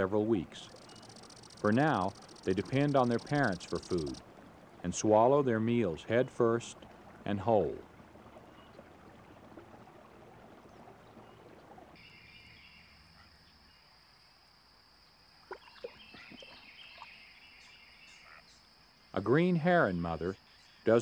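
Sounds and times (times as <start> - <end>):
rapid chirping: 0.6 - 4.2.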